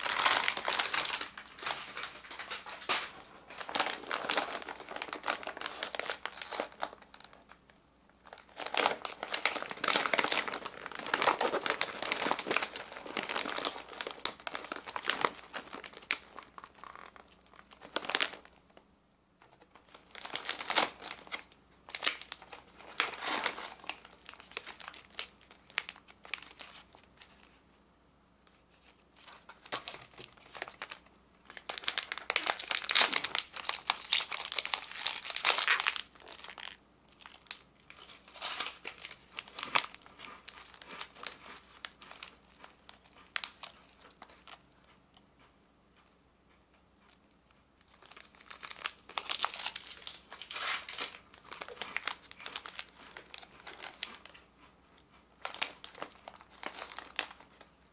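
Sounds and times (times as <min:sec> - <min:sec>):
foil wrapper tearing open: 0:00.0 - 0:07.5, 0:08.3 - 0:18.5, 0:19.8 - 0:26.9, 0:29.2 - 0:42.4, 0:48.0 - 0:54.3, 0:55.4 - 0:57.4
plastic wrappers crinkling: 0:00.0 - 0:18.8, 0:19.4 - 0:27.6, 0:28.5 - 0:44.9, 0:47.1 - 0:57.8.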